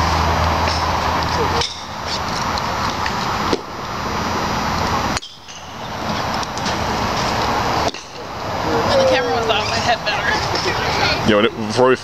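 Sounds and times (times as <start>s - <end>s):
road traffic hum: 0.0s - 12.0s
golf club striking ball: 7.8s - 8.2s.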